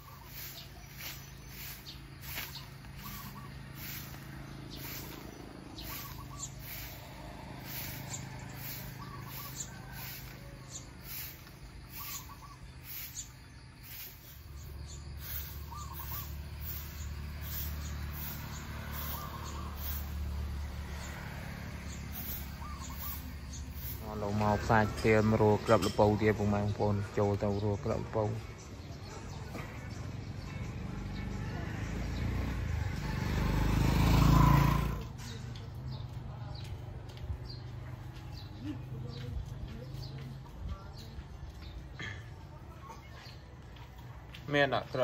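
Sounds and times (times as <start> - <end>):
bird chirps: 0.0 - 31.3.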